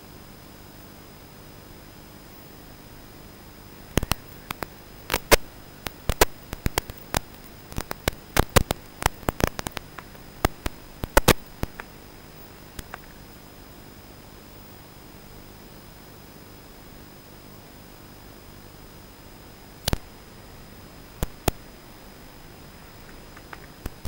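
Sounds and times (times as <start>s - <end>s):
static hiss: 0.0s - 24.0s
sharp crackles and pops: 3.6s - 13.4s, 19.4s - 24.0s.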